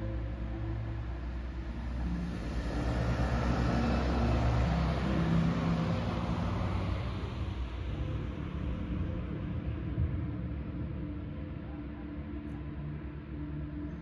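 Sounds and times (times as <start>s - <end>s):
car driving past: 0.0s - 9.5s.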